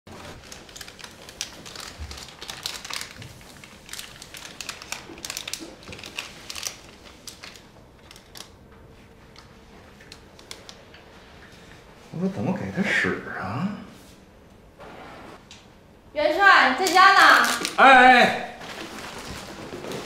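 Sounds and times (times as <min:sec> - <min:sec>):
wrapper crinkling: 0:00.1 - 0:08.6, 0:16.8 - 0:17.9, 0:18.6 - 0:20.0.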